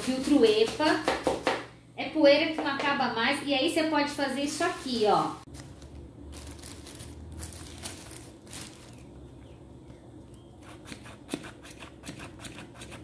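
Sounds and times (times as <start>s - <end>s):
plastic bag rustling: 4.4s - 9.3s.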